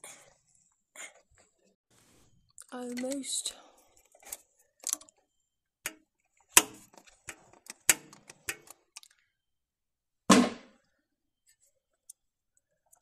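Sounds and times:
filter wrench clicks and knocks: 5.9 - 9.1.

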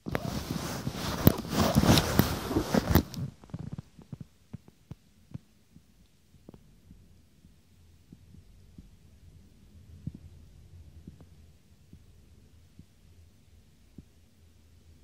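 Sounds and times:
phone handling rubbing and scraping: 0.0 - 3.7.

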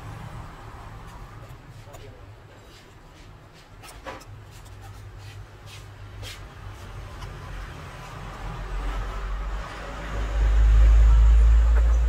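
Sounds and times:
small tools scratching and clicking: 3.6 - 5.4.

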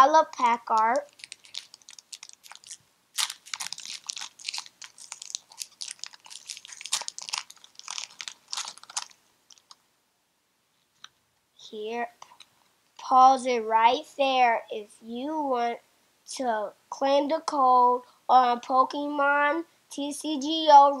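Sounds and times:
foil wrapper crinkling: 0.6 - 9.8.

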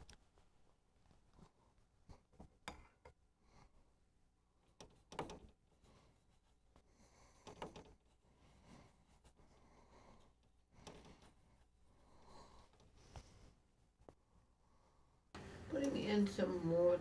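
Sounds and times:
paintbrush tapping and scrubbing: 0.0 - 3.2, 4.6 - 14.2.

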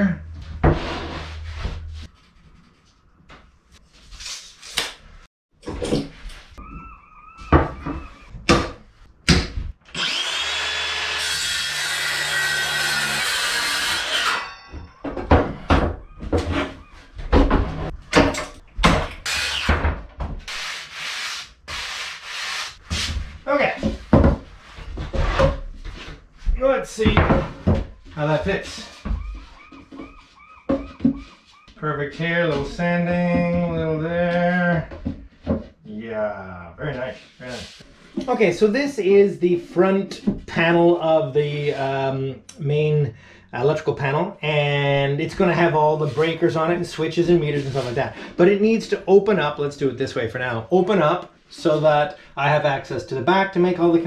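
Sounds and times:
circular saw cutting wood: 9.9 - 14.6, 19.2 - 19.8
wood knocks and clatter: 14.7 - 20.5, 23.8 - 26.2, 27.0 - 28.1, 29.0 - 31.4, 34.9 - 35.8.

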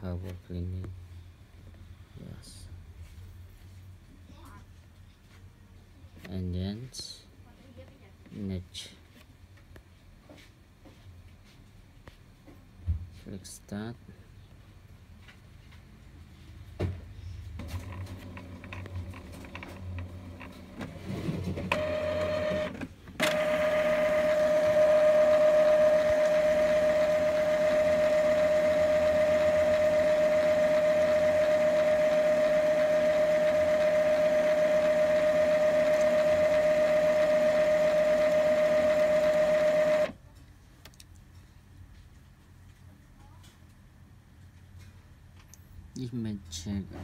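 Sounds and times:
printer motor whine: 17.6 - 40.2
printer clicks: 21.7 - 40.1.

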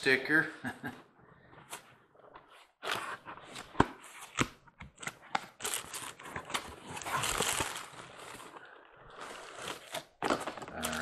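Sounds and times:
plastic bag crinkling: 5.6 - 11.0.

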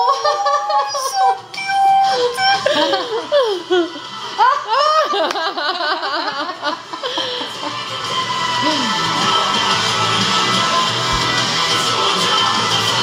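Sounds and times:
women laughing: 0.0 - 1.2, 2.6 - 7.9.

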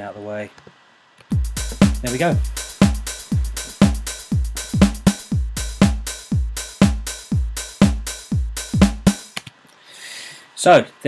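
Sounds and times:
electronic hi-hats: 1.3 - 9.4
electronic kick drum: 1.3 - 9.4
electronic clap and snare: 1.5 - 9.6.

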